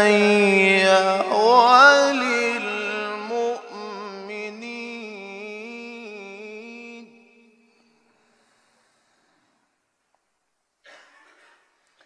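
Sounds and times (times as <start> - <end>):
man reciting melodically: 0.0 - 7.9.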